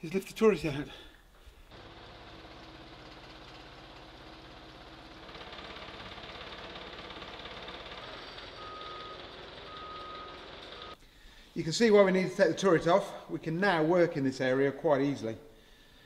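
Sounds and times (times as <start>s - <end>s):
machine engine running: 1.7s - 11.0s.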